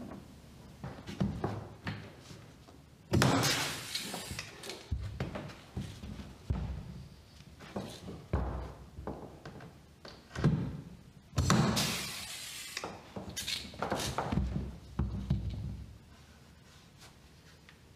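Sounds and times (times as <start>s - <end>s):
air hiss: 3.5s - 4.8s, 11.5s - 13.1s.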